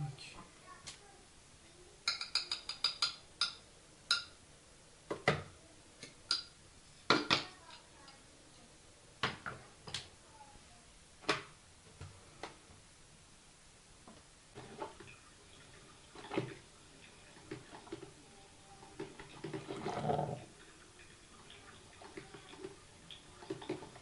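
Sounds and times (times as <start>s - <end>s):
spoon stirring in glass cup: 2.0s - 4.3s
kitchenware clattering: 2.0s - 4.4s
spoon clinking against glass: 2.1s - 4.3s.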